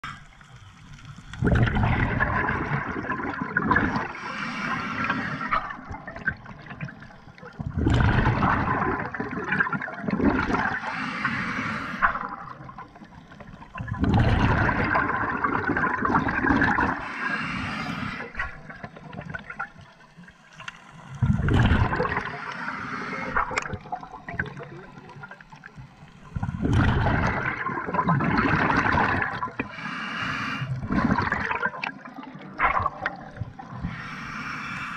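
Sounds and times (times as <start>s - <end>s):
exhaled air bubbling: 0.0s - 34.9s
diver breathing through regulator: 4.1s - 5.9s, 10.6s - 12.4s, 16.8s - 18.6s, 22.1s - 23.6s, 29.6s - 31.2s, 33.7s - 34.9s.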